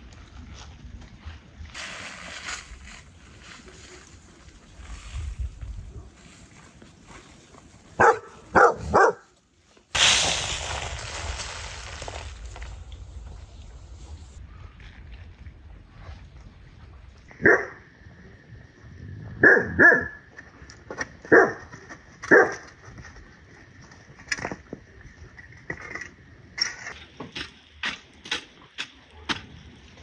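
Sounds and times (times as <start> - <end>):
shovel scraping through embers: 1.8 - 5.6, 10.0 - 14.4, 25.7 - 30.0
dog barking: 8.0 - 9.3, 17.4 - 17.8, 19.4 - 20.2, 21.3 - 21.7, 22.3 - 22.6.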